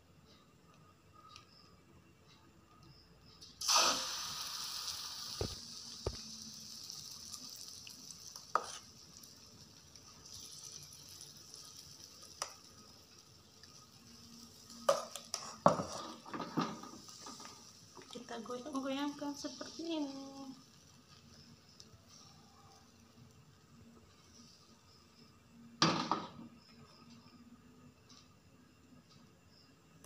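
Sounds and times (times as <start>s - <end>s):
batter sizzling in frying pan: 3.4s - 26.0s.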